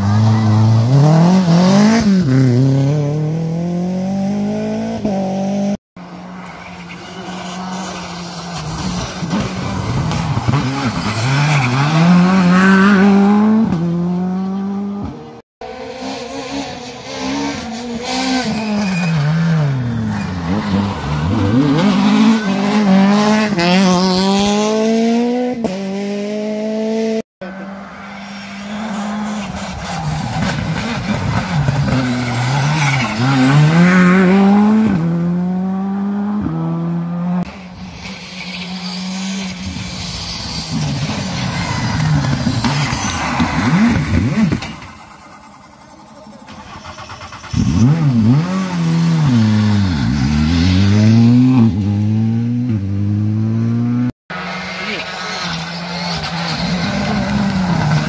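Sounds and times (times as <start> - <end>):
rally car engines passing: 0.0 - 58.0.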